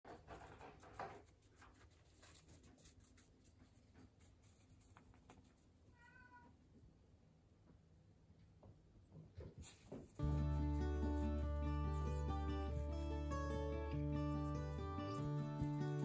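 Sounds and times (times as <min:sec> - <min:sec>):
cat meowing: 0:05.9 - 0:06.6.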